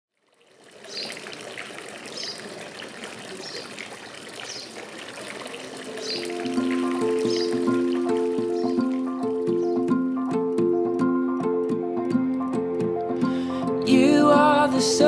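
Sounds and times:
fountain water trickling: 0:00.1 - 0:10.3
sustained music notes: 0:05.9 - 0:15.0.

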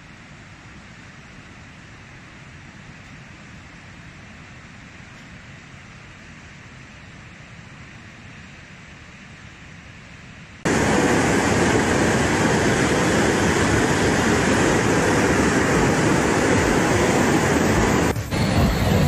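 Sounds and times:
river torrent rushing: 0:10.6 - 0:19.0.

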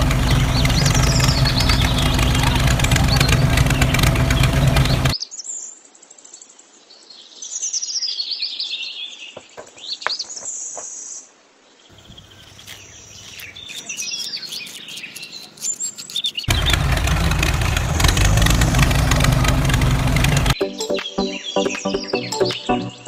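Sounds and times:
engine running: 0:00.0 - 0:05.2, 0:16.5 - 0:20.6
birds chirping: 0:00.0 - 0:05.3, 0:11.8 - 0:23.0.

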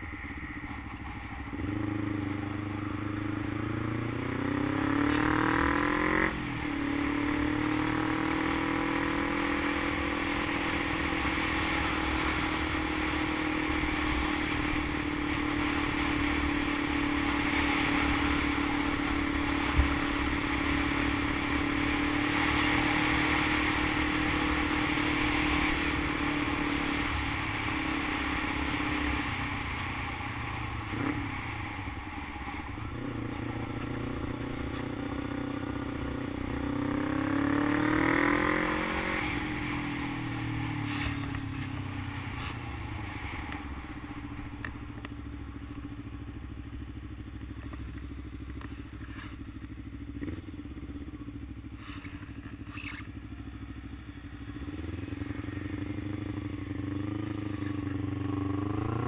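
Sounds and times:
motorcycle engine: 0:00.0 - 0:59.0.

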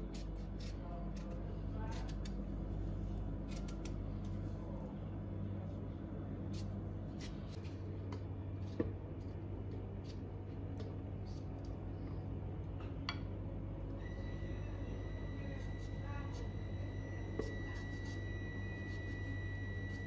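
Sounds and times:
knife cutting melon rind: 0:00.0 - 0:04.5, 0:06.5 - 0:07.8, 0:08.6 - 0:11.8, 0:17.3 - 0:20.0
steady low hum: 0:00.0 - 0:20.0.

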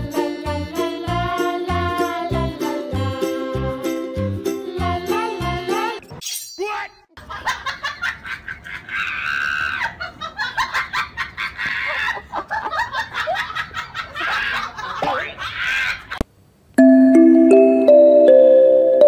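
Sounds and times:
person laughing hard: 0:07.2 - 0:16.2.

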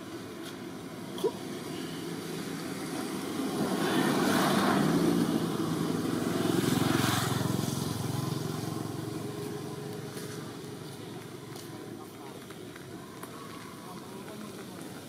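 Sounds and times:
motor engine passing by: 0:02.1 - 0:11.5.

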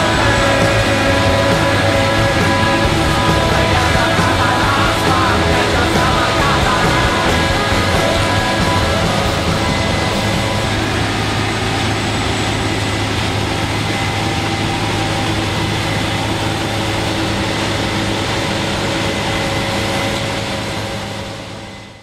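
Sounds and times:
farm machinery engines running: 0:00.0 - 0:22.0
high machinery whine: 0:00.0 - 0:22.0.

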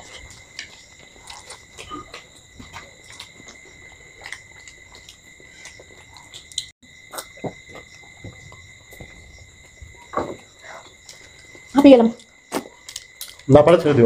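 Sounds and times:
people chewing and eating: 0:00.0 - 0:14.0.

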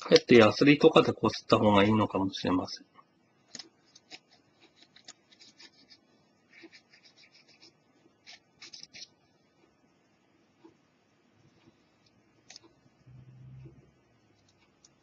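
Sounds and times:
cotton swab scratching circuit board: 0:03.5 - 0:09.3, 0:11.8 - 0:13.7.

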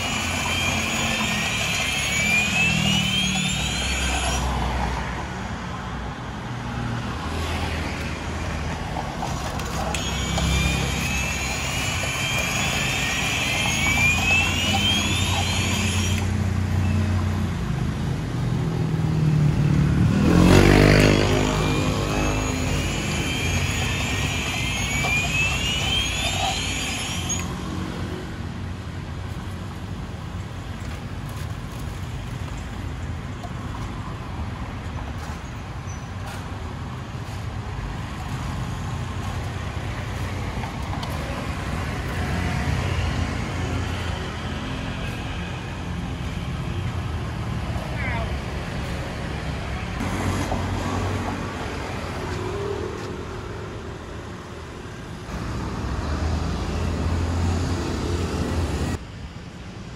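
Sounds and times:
street traffic: 0:00.0 - 0:59.9
high chirp: 0:10.0 - 0:17.0
vehicle passing close: 0:18.7 - 0:25.6.

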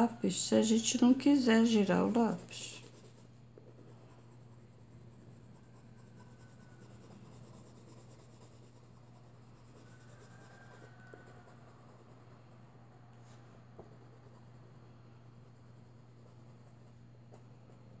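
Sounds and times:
steady low hum: 0:00.0 - 0:18.0
pencil scratching on paper: 0:01.4 - 0:12.4.

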